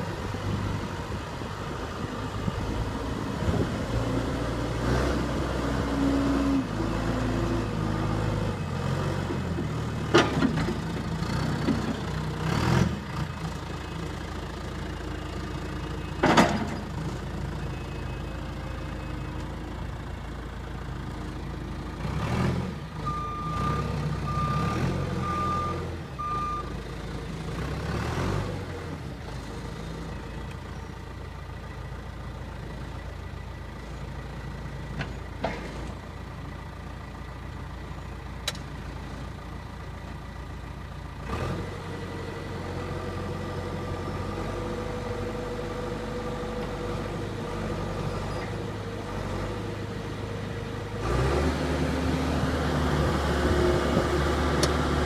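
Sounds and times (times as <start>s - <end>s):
diesel engine running: 0.0s - 55.0s
reversing alarm beeps: 23.1s - 26.7s.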